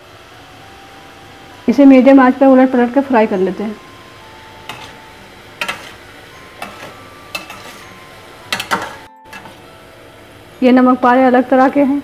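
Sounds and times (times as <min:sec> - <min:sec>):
spoon knocking against pan: 0:04.7 - 0:05.0, 0:05.6 - 0:06.0, 0:06.6 - 0:07.8, 0:08.5 - 0:09.6.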